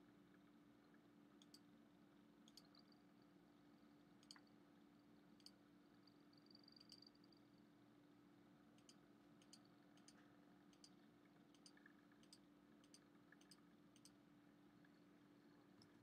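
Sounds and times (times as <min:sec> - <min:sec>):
faint steady hum: 0:00.0 - 0:16.0
faint sharp clicks: 0:00.9 - 0:01.7, 0:02.5 - 0:02.9, 0:04.2 - 0:04.5, 0:06.7 - 0:07.2, 0:08.8 - 0:14.2.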